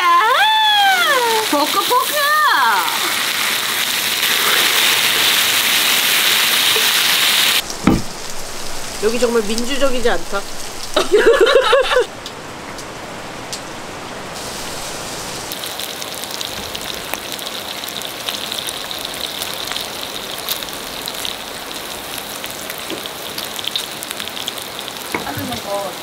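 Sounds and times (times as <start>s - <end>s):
pork sizzling on a griddle: 0.2s - 12.0s, 14.4s - 26.0s
mountain stream rushing: 0.6s - 26.0s.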